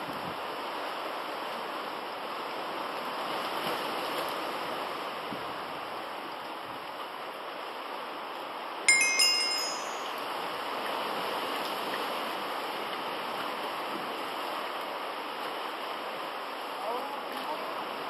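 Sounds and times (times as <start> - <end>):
wind: 0.0 - 18.0
rising bell-like chime: 8.9 - 10.2.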